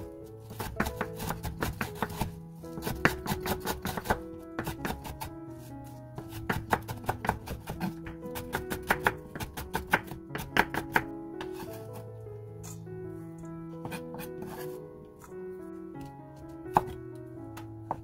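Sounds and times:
background music: 0.0s - 18.0s
knife chopping on wooden board: 0.4s - 5.2s, 6.2s - 12.0s.

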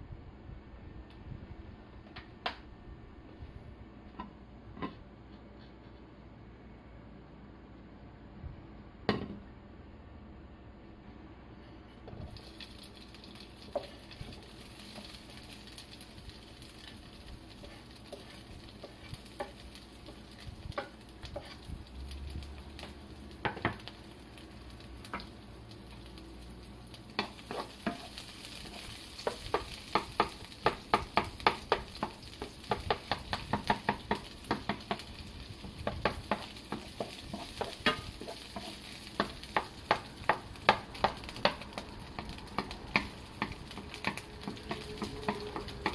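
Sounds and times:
food sizzling in oil: 12.2s - 45.9s
spatula scraping pan: 16.3s - 21.8s, 27.1s - 45.9s.

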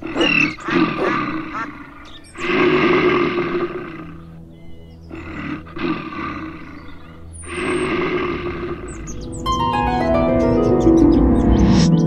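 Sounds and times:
soft background music: 0.0s - 12.0s
long rough roars: 2.4s - 4.4s, 5.1s - 9.8s.

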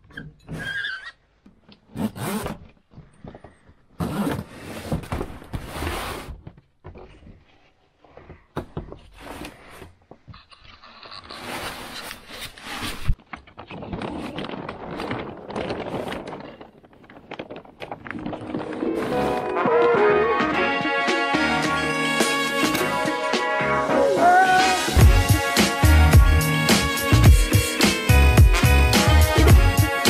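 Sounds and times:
rustling of foul-weather gear: 0.6s - 19.8s.

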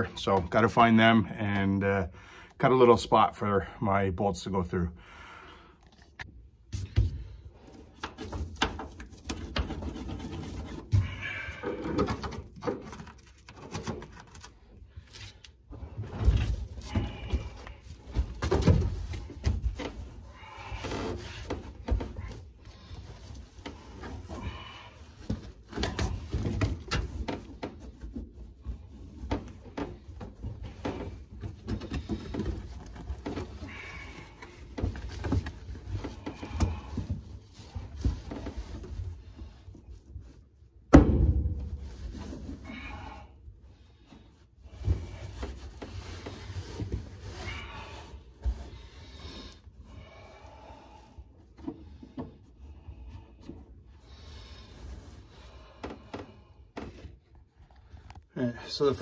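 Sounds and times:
carpet rustling and scraping: 5.8s - 43.0s, 44.0s - 59.0s
loud thump: 40.9s - 41.8s.

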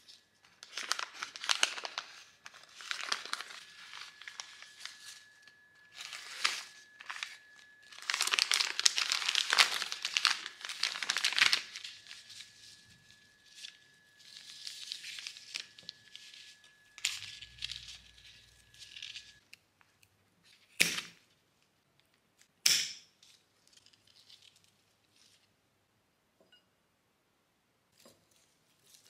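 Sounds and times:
paper rustling and tearing: 0.0s - 19.4s, 23.2s - 25.5s, 28.0s - 29.0s
faint high whine: 0.0s - 19.6s.

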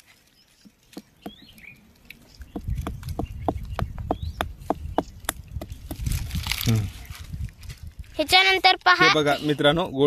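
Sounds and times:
stone knocking on rock: 2.5s - 6.1s.

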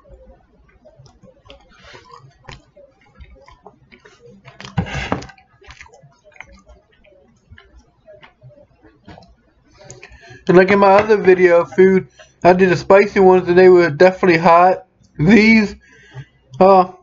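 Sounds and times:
chewing with wet mouth clicks: 0.1s - 10.5s.

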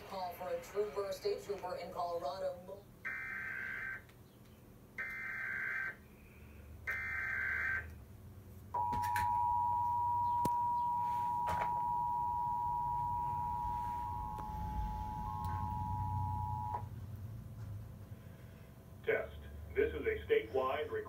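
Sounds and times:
steady two-tone alert signal: 8.8s - 16.9s.

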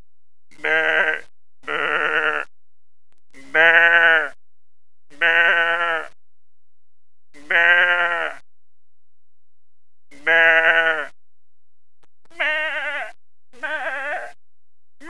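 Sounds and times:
person imitating goat bleat: 0.6s - 2.5s, 3.4s - 4.3s, 5.2s - 6.2s, 7.4s - 8.4s, 10.2s - 11.1s, 12.3s - 14.4s.

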